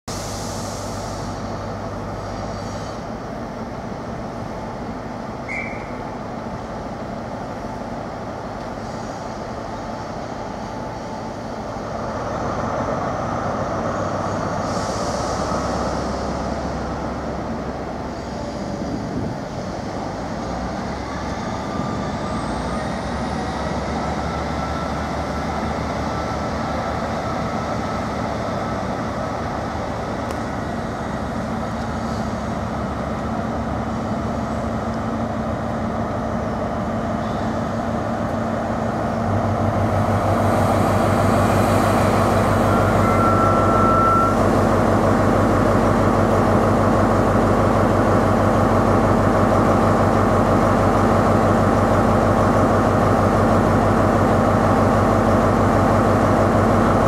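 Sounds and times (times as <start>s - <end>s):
diesel train engine pulling away: 0.1s - 57.0s
high whistle: 5.4s - 6.0s, 42.6s - 44.4s.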